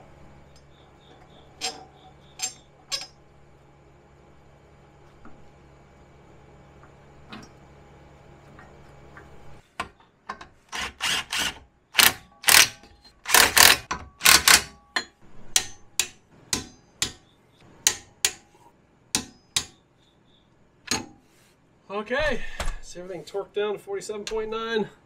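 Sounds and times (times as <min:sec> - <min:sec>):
ratcheting socket wrench clicking: 0:12.0 - 0:14.6.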